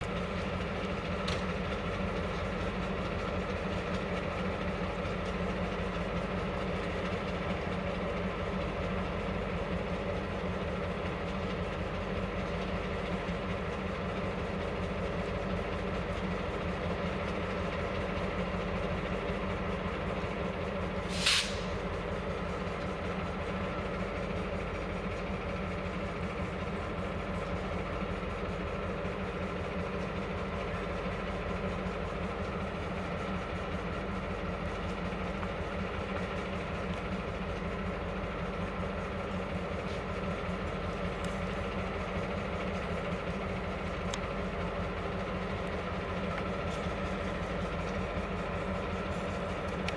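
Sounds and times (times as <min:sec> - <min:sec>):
diesel locomotive engine idling: 0:00.0 - 0:49.9
sharp air hiss: 0:21.0 - 0:21.9.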